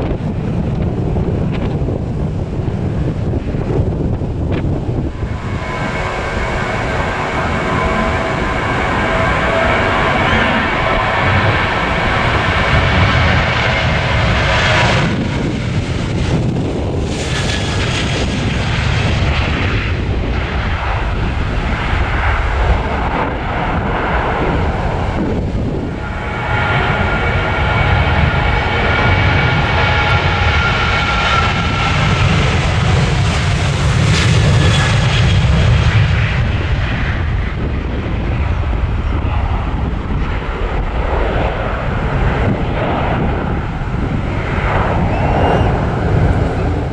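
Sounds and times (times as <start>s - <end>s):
high jet engine whine: 0.0s - 46.9s
jet airliner taking off: 0.0s - 46.9s.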